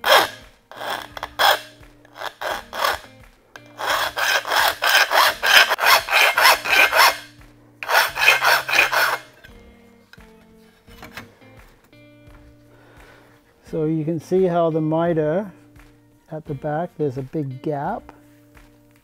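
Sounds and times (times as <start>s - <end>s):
hand file rasping on steel tube: 0.0s - 9.5s.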